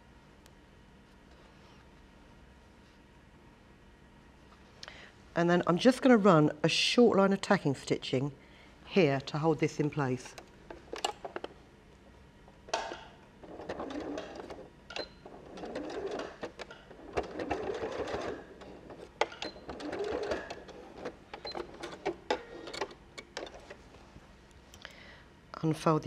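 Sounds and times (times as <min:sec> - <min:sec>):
sewing machine stitching: 0:13.4 - 0:23.8.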